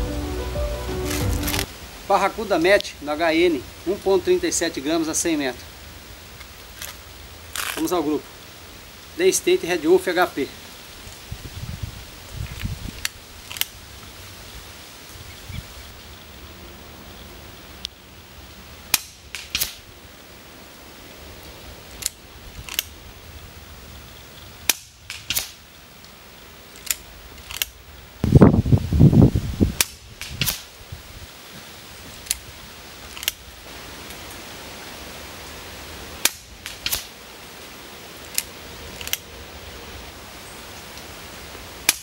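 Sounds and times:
air rifle cracks: 0:18.9 - 0:19.8, 0:24.7 - 0:25.6, 0:29.8 - 0:30.7, 0:36.2 - 0:37.1.

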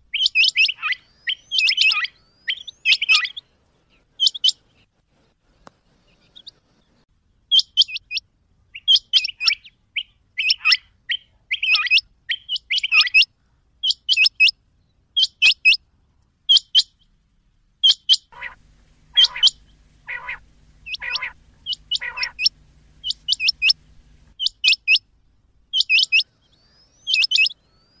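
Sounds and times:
lower-pitched bird calls: 0:00.0 - 0:04.9, 0:07.5 - 0:14.6, 0:15.2 - 0:15.8, 0:16.5 - 0:17.1, 0:17.8 - 0:28.0
quail calling high notes: 0:00.1 - 0:03.4, 0:17.8 - 0:25.1, 0:25.7 - 0:28.0
steady low hum: 0:17.2 - 0:26.9.

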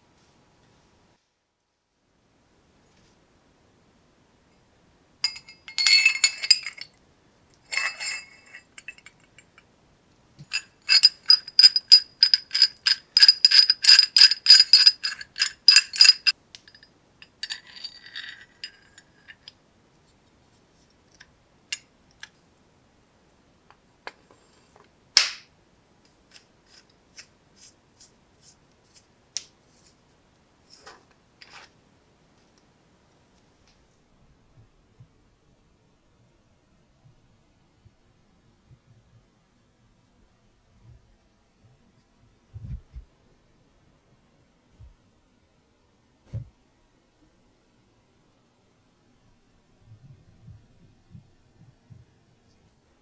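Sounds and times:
steel wrench parts clinking: 0:05.2 - 0:06.9, 0:07.6 - 0:09.6, 0:10.4 - 0:19.6.

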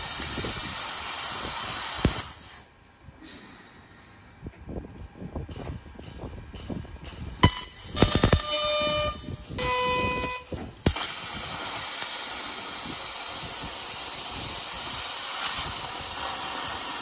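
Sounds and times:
laser cutting hiss: 0:00.0 - 0:02.6, 0:07.4 - 0:17.0
sharp crack: 0:10.8 - 0:13.3.

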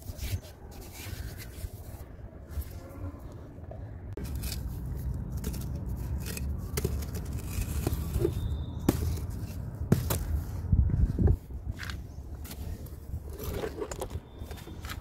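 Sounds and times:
sand blocks scraping and crumbling: 0:04.2 - 0:15.0.

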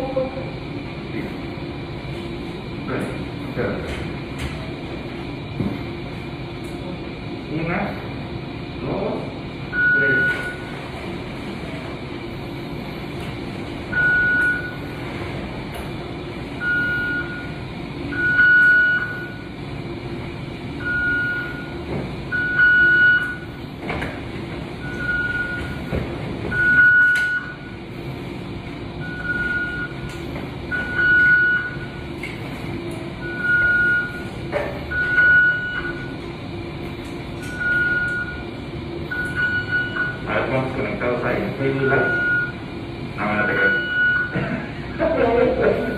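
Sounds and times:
steady background hum: 0:00.0 - 0:45.9
medical alarm beeping: 0:09.7 - 0:10.8, 0:13.9 - 0:14.9, 0:16.6 - 0:19.6, 0:20.8 - 0:23.6, 0:24.8 - 0:27.9, 0:29.0 - 0:32.1, 0:33.2 - 0:36.3, 0:37.4 - 0:40.5, 0:41.7 - 0:44.7.

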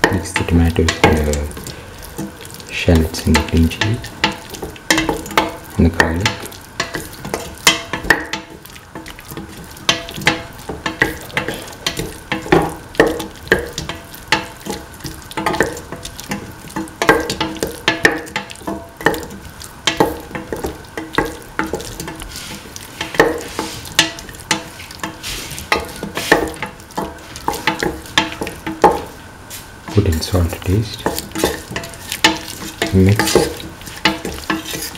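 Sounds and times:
oil sizzling: 0:00.0 - 0:34.9
spatula scraping metal pan: 0:21.2 - 0:28.5, 0:31.0 - 0:34.9.

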